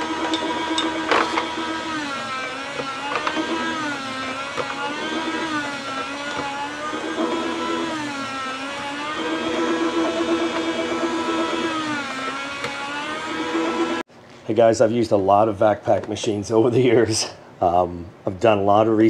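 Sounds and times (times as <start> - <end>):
meat slicer motor humming: 0.0 - 14.0.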